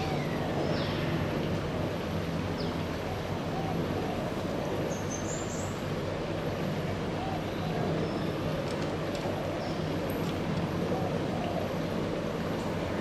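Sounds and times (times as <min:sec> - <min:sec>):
outdoor background rumble: 0:00.0 - 0:13.0.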